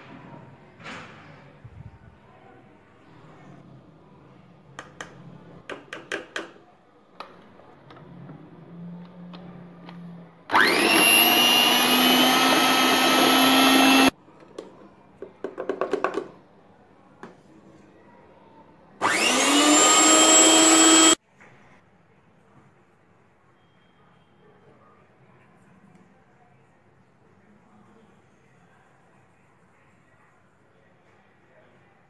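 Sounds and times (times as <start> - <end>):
electric hand mixer whining: 10.5 - 14.1, 19.0 - 21.2.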